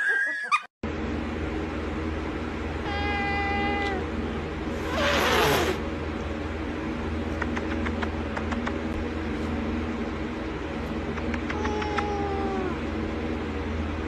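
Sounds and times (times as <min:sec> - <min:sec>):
steady low hum: 0:00.8 - 0:14.0
cat hissing: 0:02.8 - 0:04.1, 0:04.7 - 0:05.8, 0:11.3 - 0:12.8.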